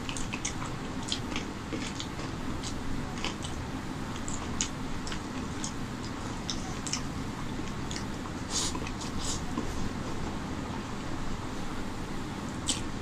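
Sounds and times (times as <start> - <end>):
wet chewing sounds: 0.0 - 9.8, 12.6 - 12.9.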